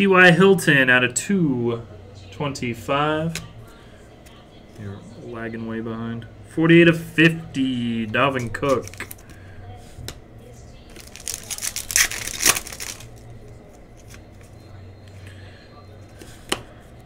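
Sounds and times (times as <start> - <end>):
steady low hum: 0.0 - 17.0
cards rustling and sliding: 8.4 - 9.4.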